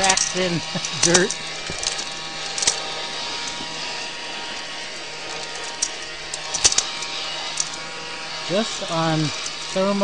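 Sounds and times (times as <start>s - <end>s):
vacuum cleaner running: 0.0s - 10.0s.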